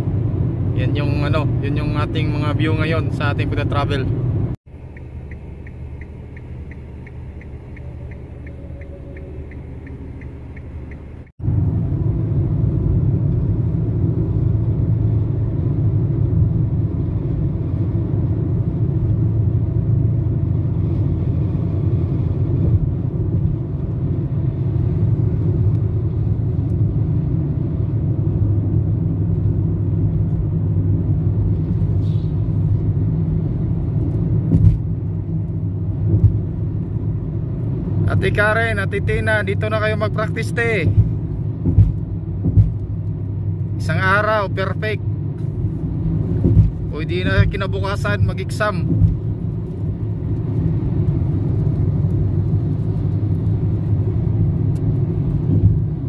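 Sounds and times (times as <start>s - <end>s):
car road and engine rumble: 0.0s - 56.0s
faint regular ticking: 4.8s - 11.3s.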